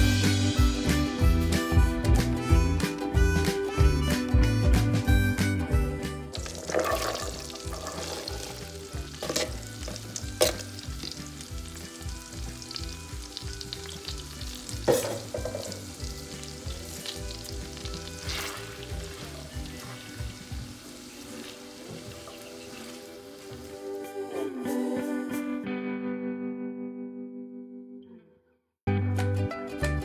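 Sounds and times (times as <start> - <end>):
vegetables sizzling in butter: 6.3 - 24.3.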